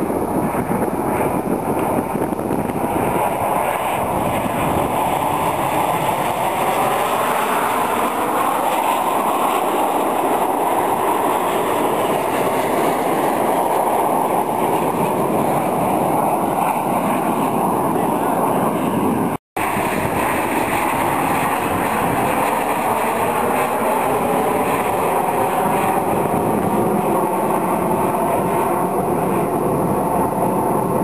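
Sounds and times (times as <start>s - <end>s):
jets flying over: 0.0s - 31.0s.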